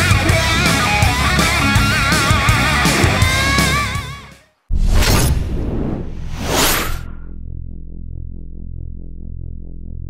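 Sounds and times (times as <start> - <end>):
drums: 0.0 - 5.8
bass: 0.0 - 10.0.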